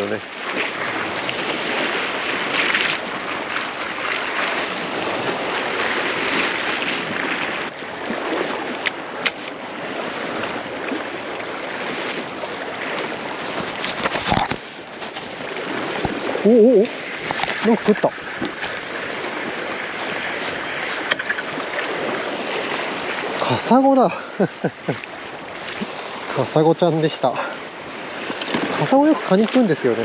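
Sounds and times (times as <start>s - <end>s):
sea waves: 0.0s - 30.0s
wind on microphone: 0.4s - 23.4s.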